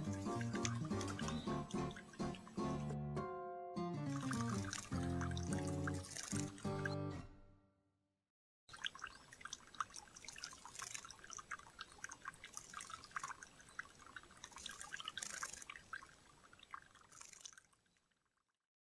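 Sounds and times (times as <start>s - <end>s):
bird splashing in water: 0.0s - 3.0s, 4.1s - 6.8s, 8.7s - 17.9s
water dripping into bird bath: 0.0s - 3.0s, 4.1s - 7.0s, 8.7s - 18.6s.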